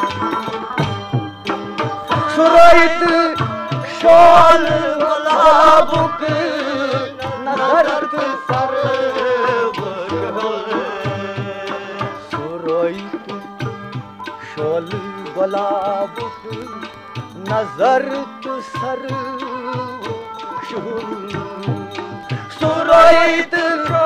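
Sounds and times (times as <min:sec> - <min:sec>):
hand drum beat: 0:00.0 - 0:24.0
wavering melodic lead: 0:00.0 - 0:24.0.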